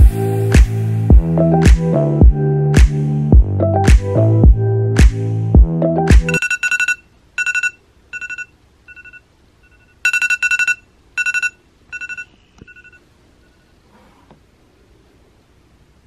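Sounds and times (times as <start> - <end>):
music with heavy beat: 0.0 - 6.4.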